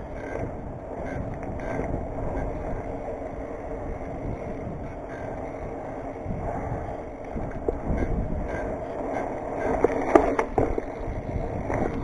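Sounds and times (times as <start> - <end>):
bicycle tyres rolling on asphalt: 0.0 - 12.0
muffled wind rumble: 0.0 - 12.0.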